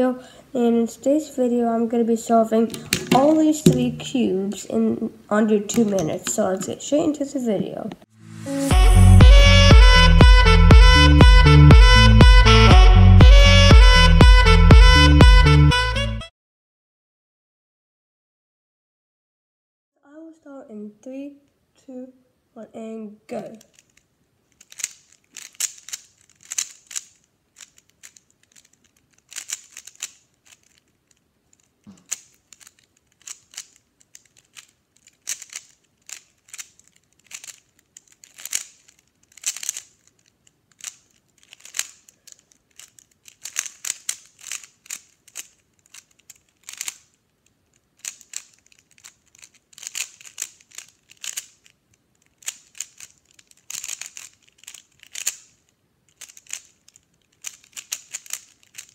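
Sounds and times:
puzzle cube clicking: 0:02.7 - 0:04.2, 0:05.7 - 0:06.8, 0:23.5 - 0:58.9.

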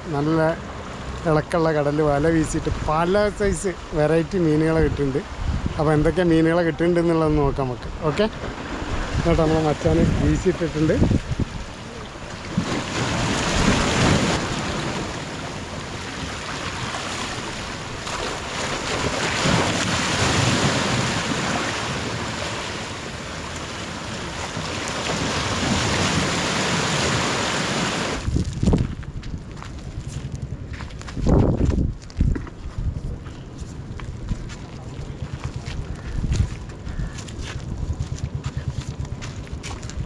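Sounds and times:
surf washing over rocks: 0:00.0 - 0:30.0
wind on microphone: 0:02.5 - 0:23.3, 0:23.9 - 0:40.0.

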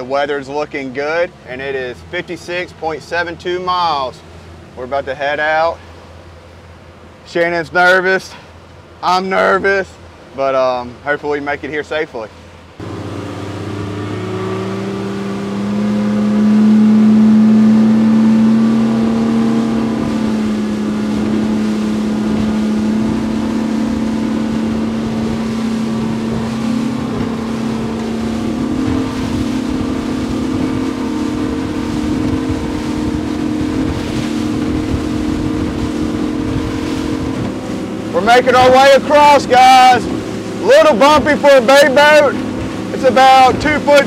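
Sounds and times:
water noise: 0:00.0 - 0:44.0
outboard motor throttling up: 0:12.8 - 0:44.0
wind noise: 0:17.7 - 0:37.8.

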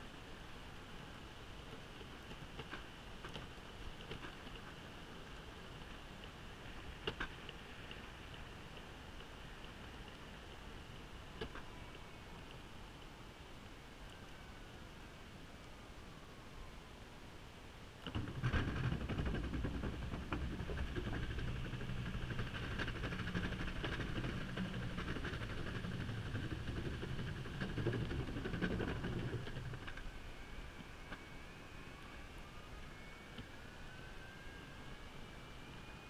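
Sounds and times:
skateboard wheels rumbling on planks: 0:18.1 - 0:30.0
wheels clacking over joints: 0:18.1 - 0:30.1
electric motor whine: 0:29.8 - 0:36.0.

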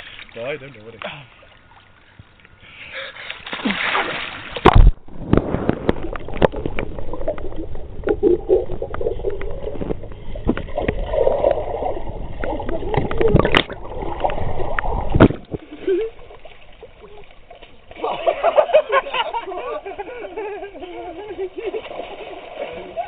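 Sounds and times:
water splashing in pool: 0:03.2 - 0:23.0
underwater bubbles and clicks: 0:04.6 - 0:18.0.

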